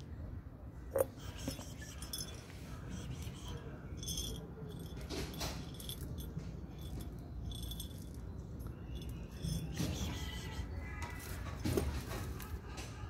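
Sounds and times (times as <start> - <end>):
kibble rattling in a glass jar: 1.3 - 2.4, 3.0 - 10.4.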